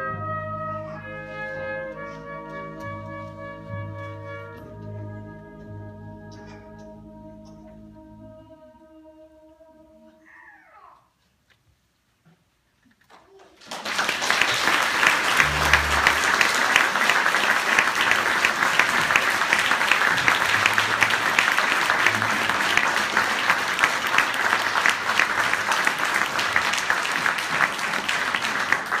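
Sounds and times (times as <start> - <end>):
audience applause: 13.3 - 29.0.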